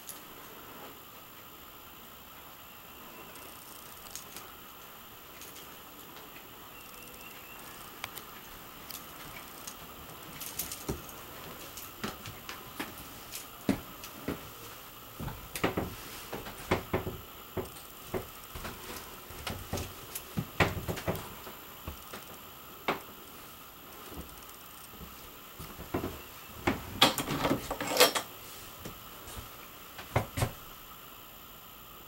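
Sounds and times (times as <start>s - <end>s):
steady low hiss: 0.0s - 32.0s
footsteps and small knocks: 7.1s - 30.8s.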